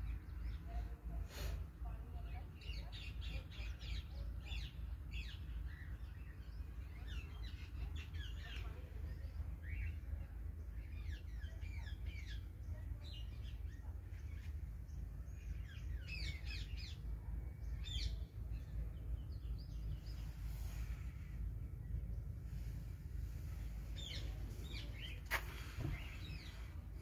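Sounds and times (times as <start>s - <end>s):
birds chirping: 1.8s - 27.0s
steady low rumble: 4.4s - 27.0s.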